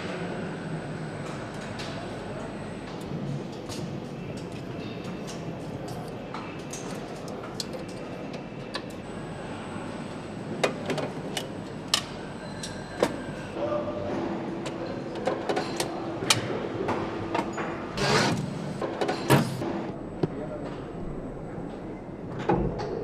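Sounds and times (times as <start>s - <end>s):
steady hum tone: 0.0s - 4.9s, 8.6s - 14.6s
factory machine hum: 0.0s - 23.0s.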